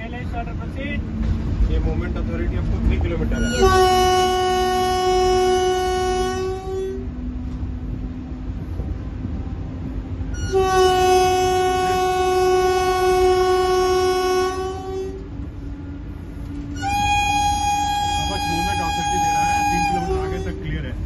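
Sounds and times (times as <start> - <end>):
train rumble: 0.0 - 21.0
locomotive horn blasts: 3.2 - 7.5, 10.2 - 21.0.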